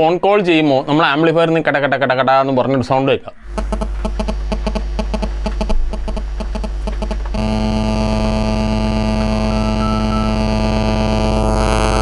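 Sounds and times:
low mains hum: 0:00.0 - 0:12.0
radio interference clicks and buzz: 0:03.5 - 0:12.0.

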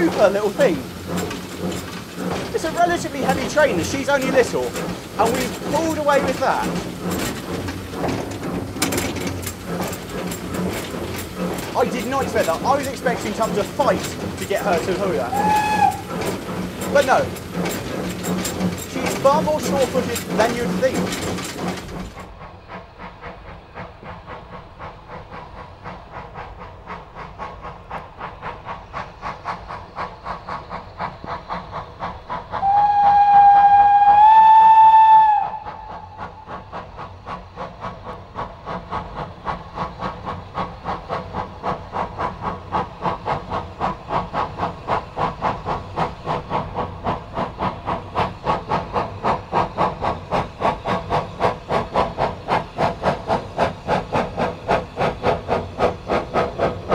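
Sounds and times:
steam locomotive exhaust beats: 0:00.0 - 0:56.9
steam whistle blast: 0:15.3 - 0:16.0, 0:32.6 - 0:36.2.

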